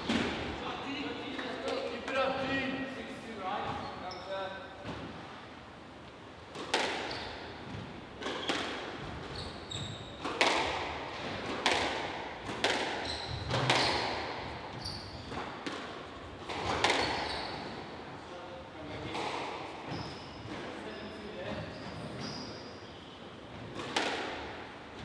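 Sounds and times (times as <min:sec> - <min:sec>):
ball hitting walls: 0:06.5 - 0:09.4, 0:10.2 - 0:17.8, 0:23.6 - 0:25.0
racket smacking squash ball: 0:06.5 - 0:18.0, 0:23.5 - 0:25.0
shoes squeaking on wooden floor: 0:08.4 - 0:10.3, 0:13.0 - 0:15.6, 0:16.6 - 0:17.9, 0:19.8 - 0:23.7.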